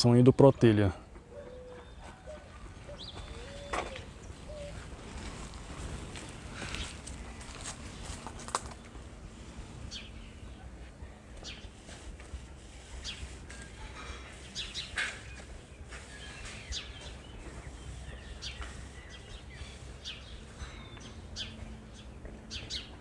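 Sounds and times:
low outdoor rumble: 0.9 - 23.0
small birds chirping: 1.0 - 9.1, 9.8 - 23.0.

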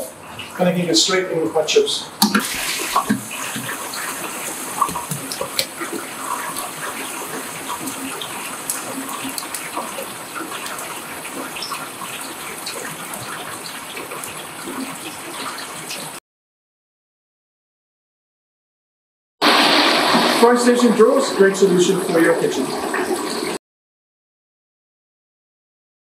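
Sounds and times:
oil pops and crackles: 2.2 - 6.0
oil sizzling in deep fryer: 2.2 - 16.2, 19.4 - 23.6.

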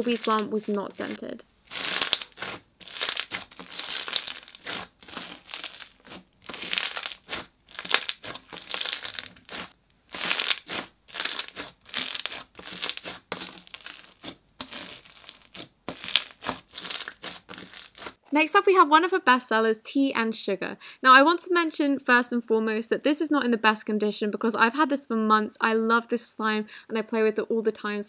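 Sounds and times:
slime crunchy crackles: 0.0 - 18.2.

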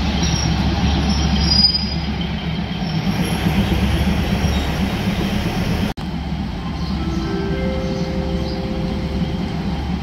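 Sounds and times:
diesel railcar engine idling: 0.0 - 10.0.

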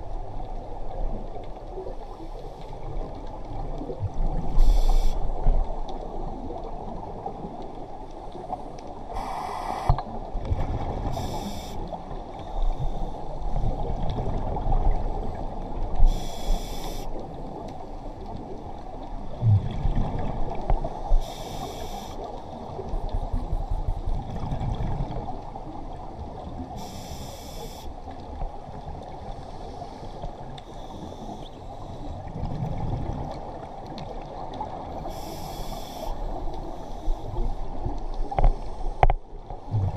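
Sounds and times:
regulator hiss on inhale: 4.5 - 5.3, 9.1 - 10.0, 11.1 - 13.3, 16.0 - 17.2, 21.0 - 22.4, 26.8 - 27.9, 29.4 - 32.2, 35.0 - 37.6
bubbles rumbling: 19.3 - 21.0, 22.7 - 25.5, 39.6 - 39.9.

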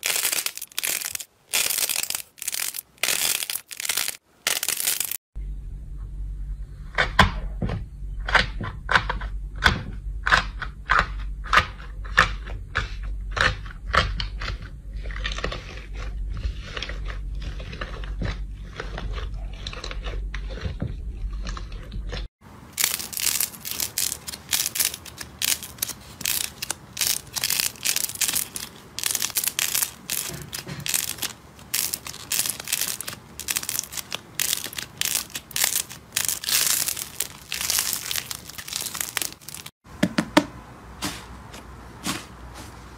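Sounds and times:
slime crackling when squeezed: 0.0 - 5.2, 22.8 - 39.7
slime crust crunching: 0.0 - 5.2, 22.7 - 39.8
low steady hum: 5.4 - 42.9.

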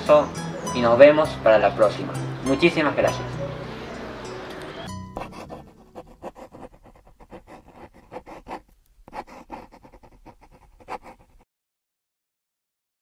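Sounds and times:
faint short scrapes and rubs: 5.2 - 11.4.

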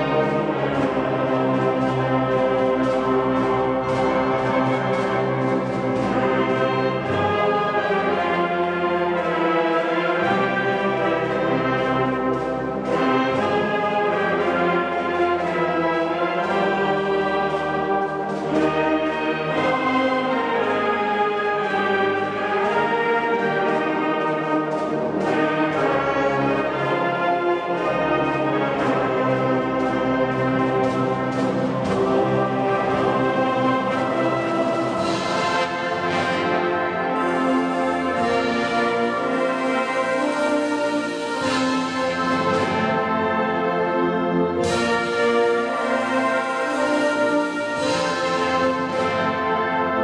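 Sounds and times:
orchestral brass music: 0.0 - 50.0.

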